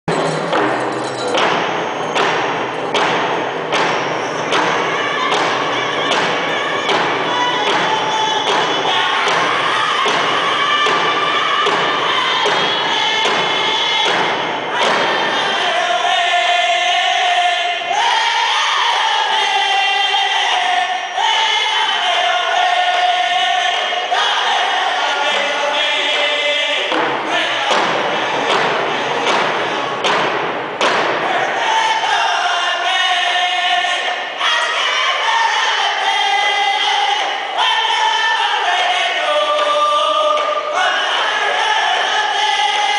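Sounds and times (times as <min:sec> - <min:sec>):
hand drums beating in unison: 0:00.1 - 0:15.4, 0:26.8 - 0:31.3
men singing: 0:04.4 - 0:30.0, 0:31.2 - 0:42.9.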